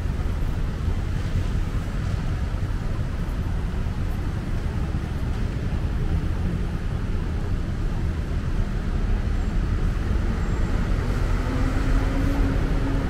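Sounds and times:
road traffic rumble: 0:00.0 - 0:13.0
vehicle engine hum: 0:00.0 - 0:13.0.

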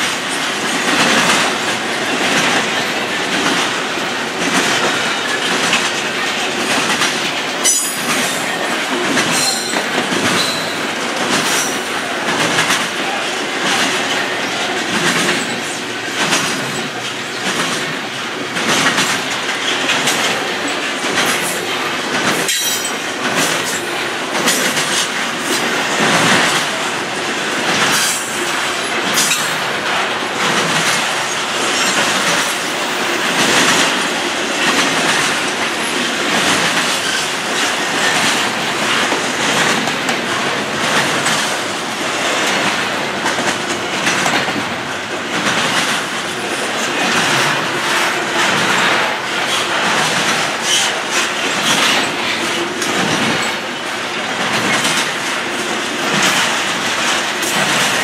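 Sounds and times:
freight train wheels rumbling on rail: 0:00.0 - 0:58.0
wheels clacking over track: 0:00.0 - 0:58.0.

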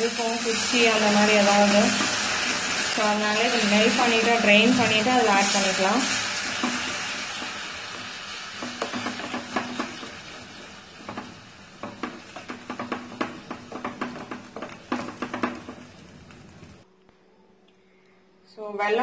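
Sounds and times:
simmering hiss: 0:00.0 - 0:12.2.

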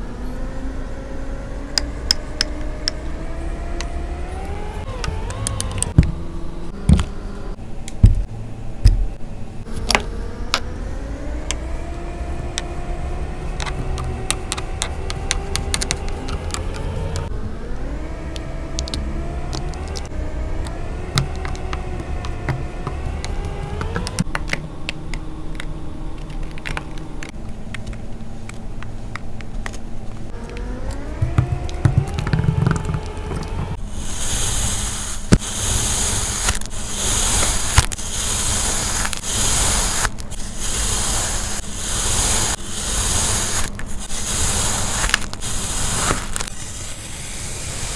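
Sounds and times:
rising whine: 0:00.0 - 0:27.4, 0:30.2 - 0:47.9
low rumble: 0:30.0 - 0:34.9.

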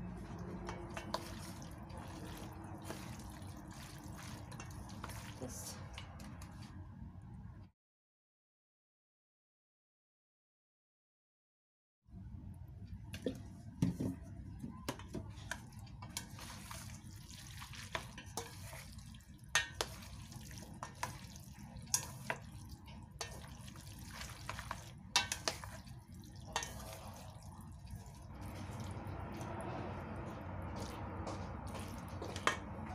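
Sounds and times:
utensils clicking on metal bowl: 0:00.6 - 0:06.5, 0:19.5 - 0:27.1.

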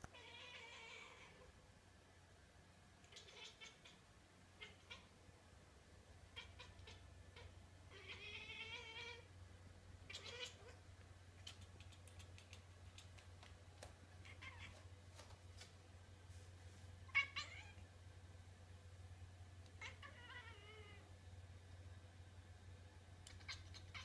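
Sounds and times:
cat chattering: 0:03.0 - 0:04.0, 0:04.6 - 0:05.1, 0:06.3 - 0:09.2, 0:10.1 - 0:10.8, 0:11.4 - 0:13.2, 0:23.2 - 0:24.0
cat chirping calls: 0:03.0 - 0:04.0, 0:04.6 - 0:05.1, 0:06.3 - 0:09.3, 0:10.0 - 0:10.8, 0:14.2 - 0:14.9, 0:17.1 - 0:17.8, 0:19.8 - 0:21.0, 0:23.2 - 0:24.0.

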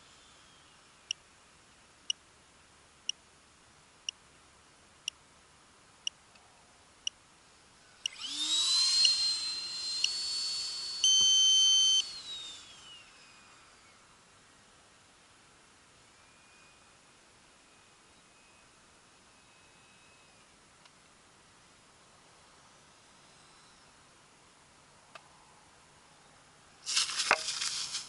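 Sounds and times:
rc jet fan whine: 0:00.0 - 0:02.1, 0:07.0 - 0:25.3
loud steady beep: 0:11.0 - 0:12.0.

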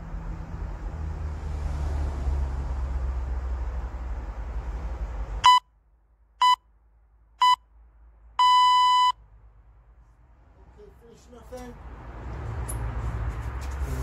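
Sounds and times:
interval timer beeps: 0:07.4 - 0:07.6, 0:08.4 - 0:09.2.

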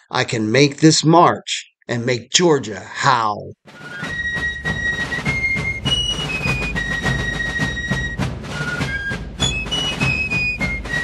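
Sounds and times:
regular drum beat: 0:03.7 - 0:11.0.

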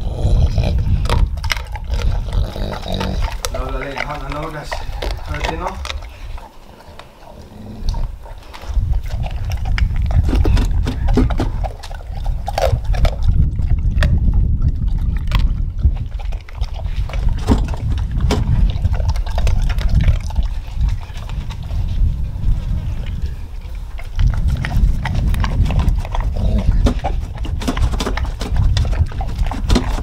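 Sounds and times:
dog lapping water: 0:00.0 - 0:30.0
steady low rumble: 0:00.0 - 0:30.0.

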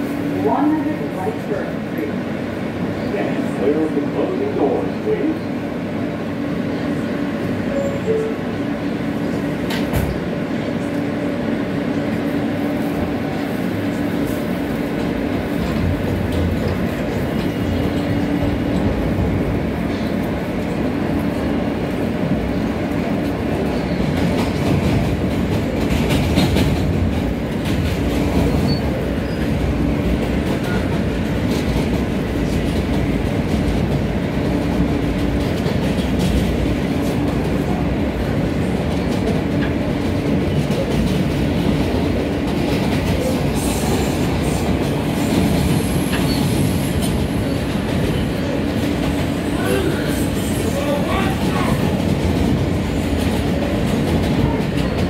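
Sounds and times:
train running noise: 0:00.0 - 0:55.0
subway train motor tone: 0:00.2 - 0:24.3.

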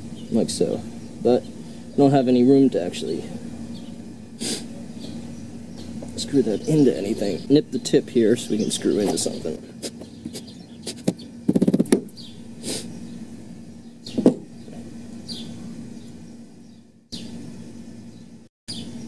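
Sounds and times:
bird chirps: 0:00.0 - 0:19.0
steady low hum: 0:00.0 - 0:19.0
hand tools scraping wood: 0:09.0 - 0:12.0
sharp knock: 0:10.9 - 0:12.1.

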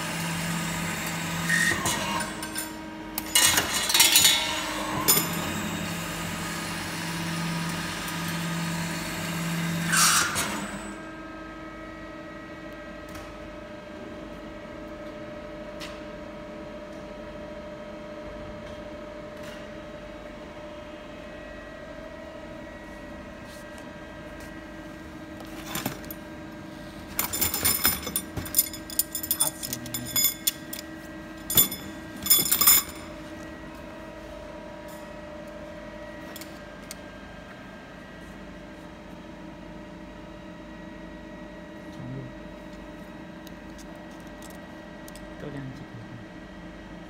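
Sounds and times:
steel rods clattering in a box: 0:27.2 - 0:30.8.

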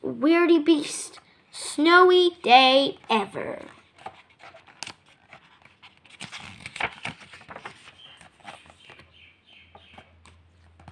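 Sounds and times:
paper pages turning: 0:03.1 - 0:10.9.

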